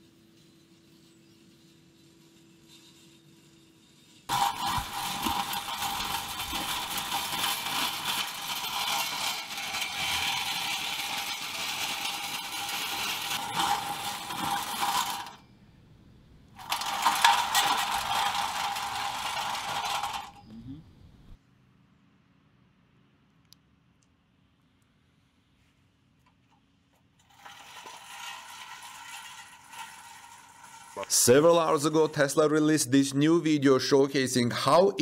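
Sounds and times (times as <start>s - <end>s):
tread belts scraping over pavement: 0.0s - 15.5s, 16.5s - 20.5s, 27.0s - 32.9s.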